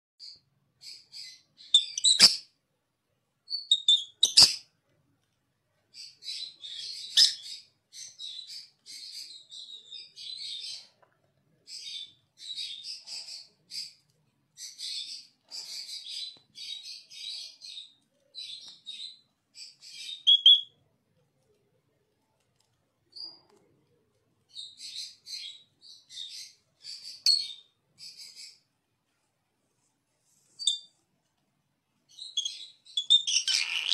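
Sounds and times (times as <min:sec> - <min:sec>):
parrots chattering and chirping: 0:00.9 - 0:02.5, 0:03.6 - 0:04.7, 0:32.2 - 0:33.9.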